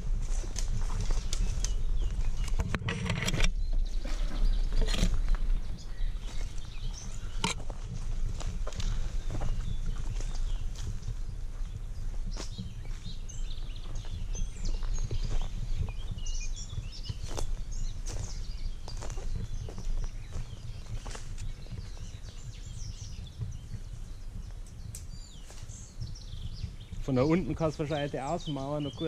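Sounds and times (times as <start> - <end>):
small birds chirping: 0.0 - 29.0
steady low rumble: 0.0 - 29.0
footsteps through dry leaves: 17.1 - 22.1.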